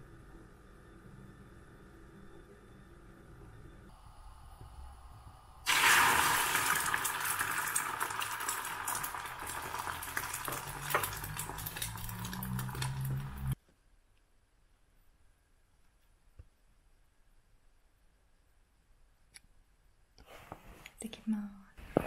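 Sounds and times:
food sizzling in a hot pan: 0:05.6 - 0:13.6.

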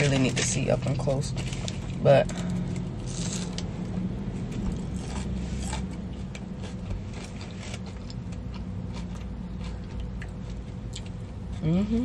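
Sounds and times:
low hum in car cabin: 0:00.0 - 0:12.0.

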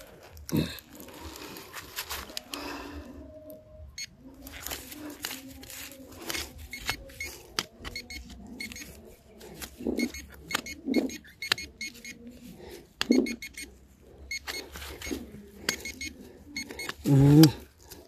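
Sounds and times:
metal detector beeping: 0:06.2 - 0:09.0, 0:09.8 - 0:12.3, 0:13.0 - 0:17.6.

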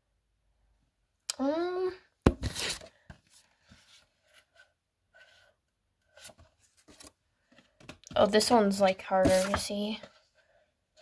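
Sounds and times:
plastic sleeves rustling: 0:06.1 - 0:10.4.

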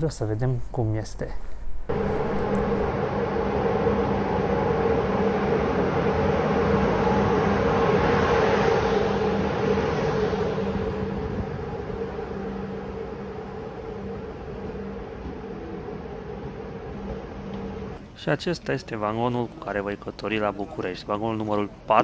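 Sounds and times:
locomotive hum: 0:01.5 - 0:22.0
train wheels rolling: 0:01.9 - 0:12.2, 0:14.2 - 0:18.0.

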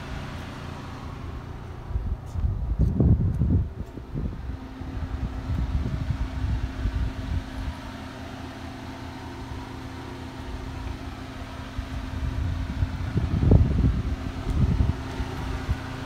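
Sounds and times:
vehicle engine idling: 0:00.0 - 0:16.0
wind rumbling on microphone: 0:01.4 - 0:08.0, 0:10.6 - 0:16.0.

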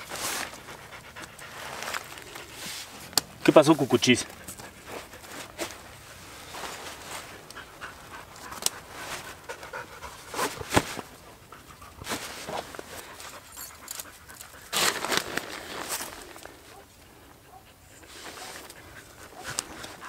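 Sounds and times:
tent fabric rustling: 0:00.0 - 0:14.0, 0:14.6 - 0:16.8, 0:18.1 - 0:18.7
dog panting: 0:00.4 - 0:02.6, 0:03.7 - 0:05.5, 0:07.2 - 0:10.6, 0:11.2 - 0:12.0, 0:12.9 - 0:14.7, 0:16.7 - 0:20.0.

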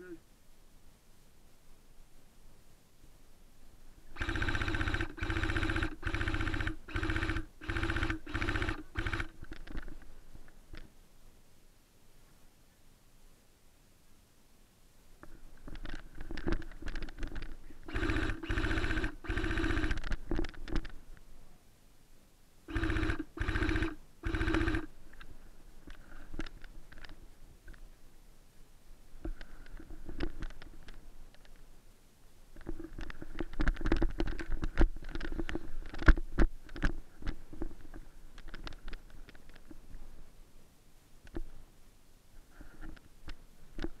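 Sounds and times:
airsoft rifle full-auto rattle: 0:04.1 - 0:10.0, 0:15.7 - 0:21.0, 0:22.7 - 0:25.3
sharp clicks: 0:04.2 - 0:10.0, 0:15.6 - 0:21.0.

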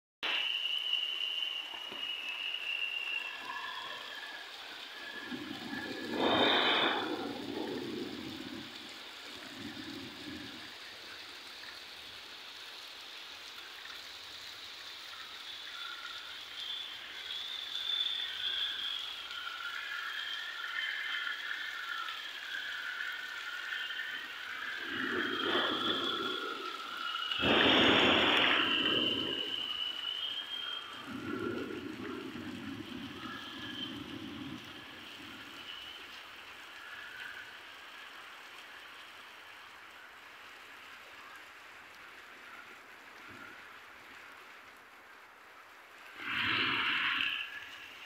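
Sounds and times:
heavy rain hissing: 0:00.2 - 0:48.0
high-pitched drone: 0:24.1 - 0:32.4.

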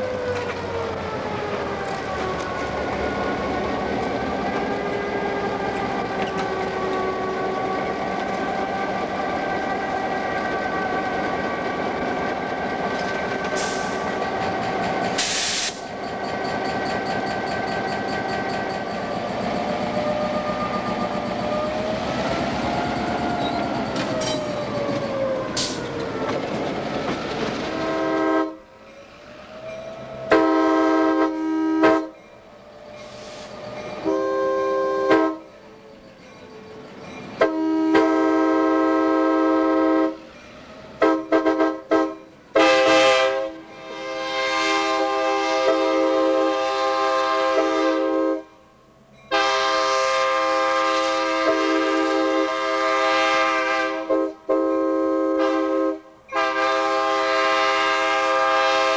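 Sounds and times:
diesel locomotive engine running: 0:00.0 - 0:43.9
locomotive air horn blast: 0:15.2 - 0:15.8, 0:27.8 - 0:28.6, 0:30.3 - 0:32.2, 0:33.1 - 0:35.5, 0:37.4 - 0:40.2, 0:41.0 - 0:48.6, 0:49.3 - 0:58.9
short hiss: 0:15.2 - 0:15.8.

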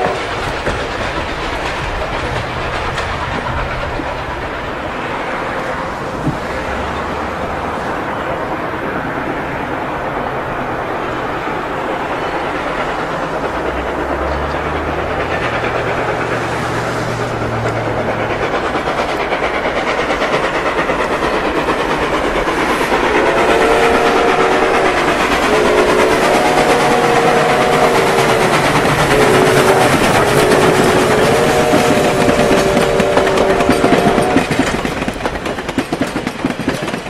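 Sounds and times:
train clattering on rails: 0:00.0 - 0:37.0
chime train whistle blasts: 0:23.1 - 0:34.6.

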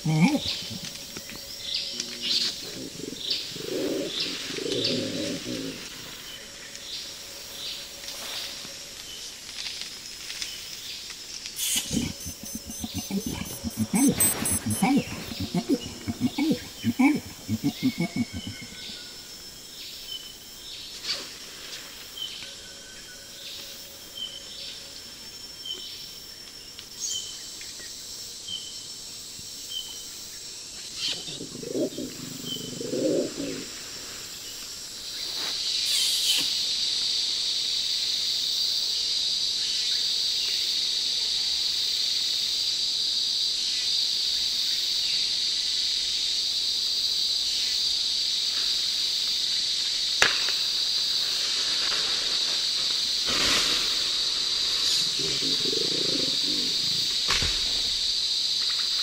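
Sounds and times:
loud high insect drone: 0:00.0 - 0:59.0
short high insect chirp: 0:11.6 - 0:15.9, 0:34.4 - 0:36.8
brief low call: 0:11.6 - 0:18.8.

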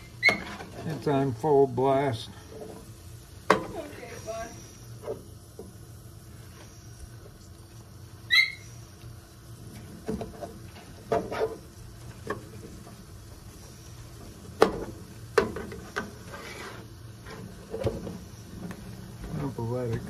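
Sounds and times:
utensil scraping a griddle: 0:00.0 - 0:01.4, 0:09.6 - 0:20.0
meat sizzling on a griddle: 0:00.0 - 0:20.0.

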